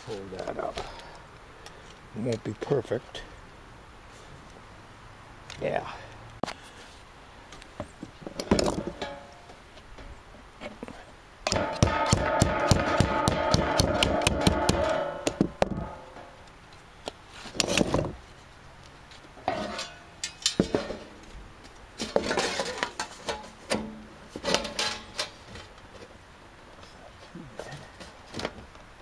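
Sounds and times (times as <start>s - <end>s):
metal scraping and flexing: 11.5s - 16.4s, 19.4s - 21.3s, 22.0s - 25.7s
sheet metal rattling and ringing: 11.6s - 16.4s.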